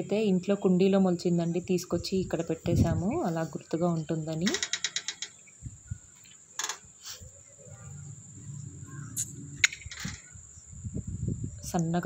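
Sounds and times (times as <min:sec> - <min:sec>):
crickets chirring: 0:00.0 - 0:12.0
sharp clicks and knocks: 0:04.3 - 0:05.4
faint low rumble: 0:07.7 - 0:10.2.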